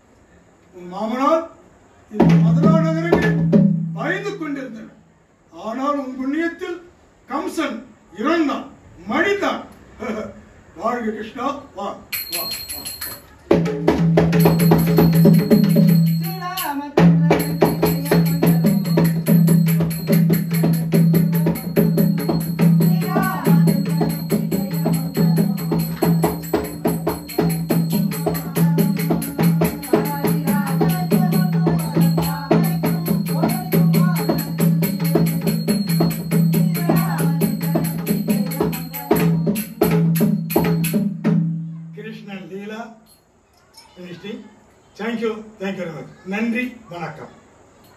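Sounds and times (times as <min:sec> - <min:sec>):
rapid barrel drum drumming: 0:02.2 - 0:04.0, 0:13.5 - 0:41.5.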